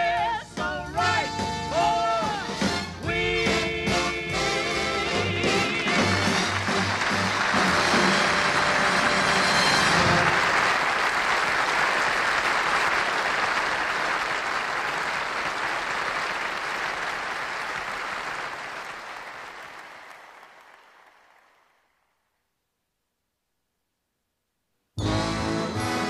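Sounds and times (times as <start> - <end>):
audience applauding: 5.6 - 22.1
orchestra brass chord: 5.9 - 10.5, 25.0 - 26.0.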